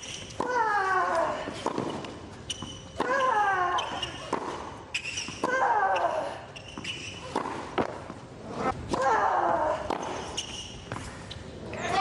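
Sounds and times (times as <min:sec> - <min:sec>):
racket striking ball: 0:01.6 - 0:05.6, 0:07.2 - 0:08.2.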